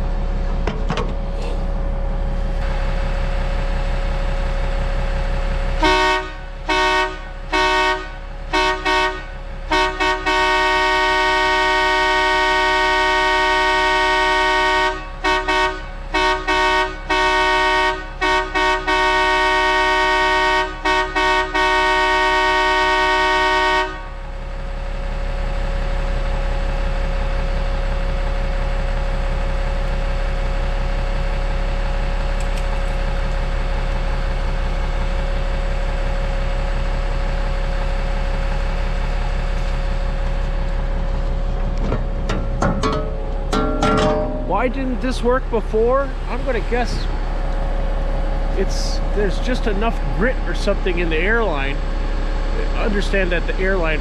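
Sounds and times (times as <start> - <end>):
diesel engine idling: 0.0 - 54.0
air horn blasts: 5.8 - 24.2.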